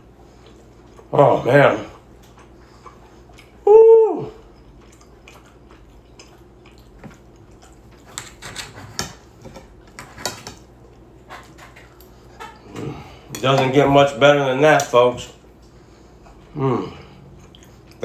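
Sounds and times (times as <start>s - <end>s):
knife and fork scraping a plate: 8.0s - 10.6s.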